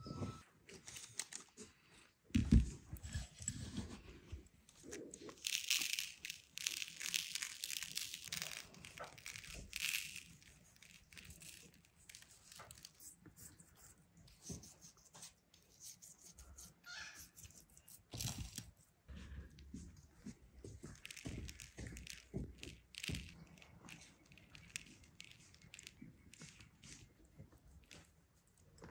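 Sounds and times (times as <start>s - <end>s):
hands rubbing salt on fish scales: 5.3s - 18.9s.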